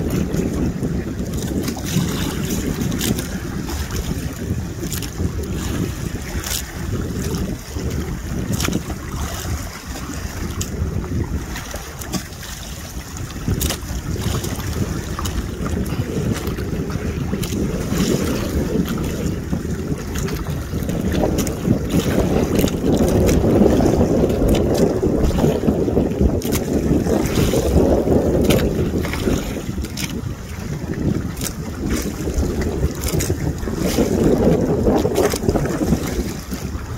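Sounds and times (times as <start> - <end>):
water churning and splashing: 0.0 - 36.9
wind buffeting microphone: 0.0 - 36.9.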